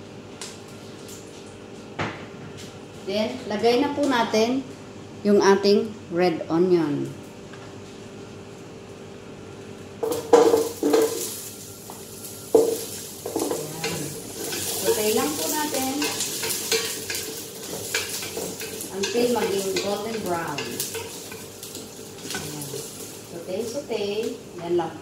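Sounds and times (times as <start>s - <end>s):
onion sizzling in oil: 10.0s - 25.0s
wooden spoon knocking pot: 12.5s - 14.0s.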